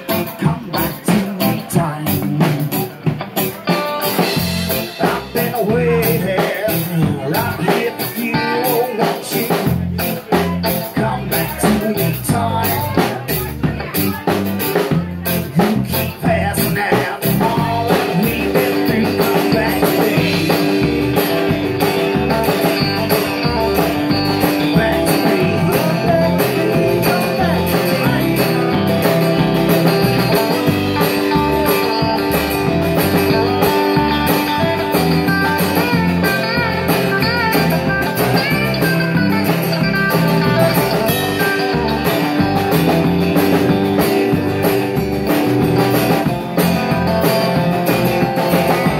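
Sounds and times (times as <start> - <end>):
drum kit: 0.0 - 48.9
electric bass: 0.0 - 48.9
strummed acoustic guitar: 0.0 - 48.9.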